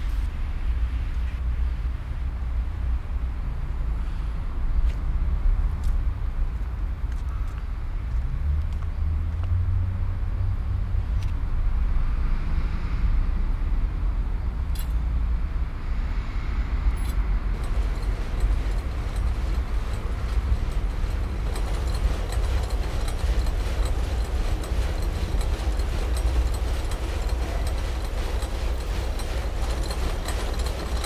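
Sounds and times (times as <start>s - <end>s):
low rumble of city traffic: 0.0s - 31.0s.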